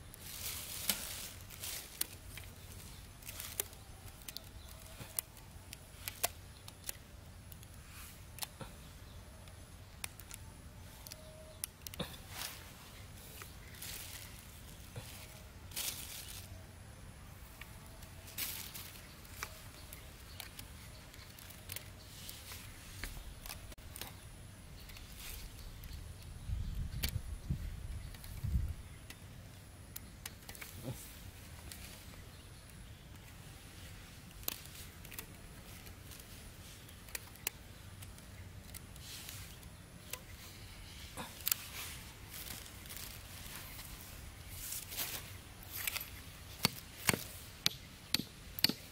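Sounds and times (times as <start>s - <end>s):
bamboo sticks clicking and rustling: 0.0s - 48.9s
soft rustling: 0.1s - 7.0s.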